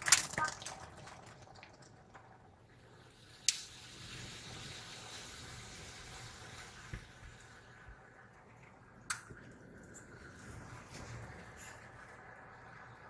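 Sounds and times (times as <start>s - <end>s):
car wash brushes and water: 9.9s - 13.0s.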